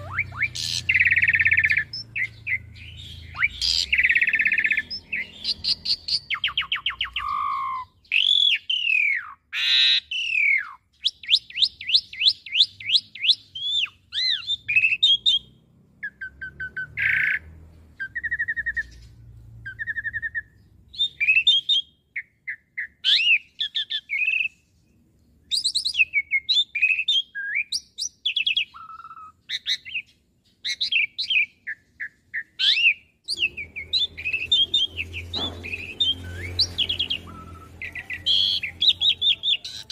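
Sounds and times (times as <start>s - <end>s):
starling singing varied song: 0.0s - 8.7s, 30.9s - 39.9s.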